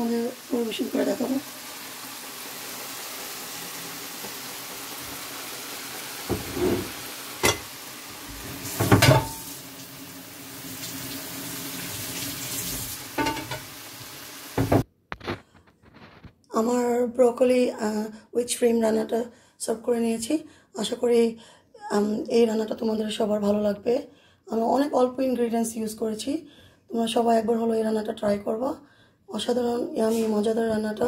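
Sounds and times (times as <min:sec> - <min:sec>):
food sizzling in a frying pan: 0:00.0 - 0:14.9.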